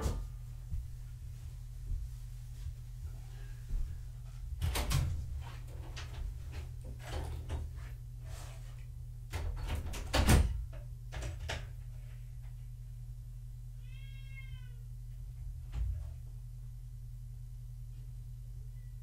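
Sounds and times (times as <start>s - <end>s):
steady low hum: 0.0s - 19.0s
cat meowing: 13.8s - 14.9s.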